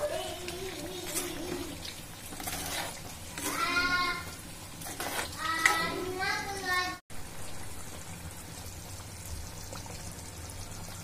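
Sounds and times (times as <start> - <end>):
spoon stirring thick gravy: 0.4 - 6.1.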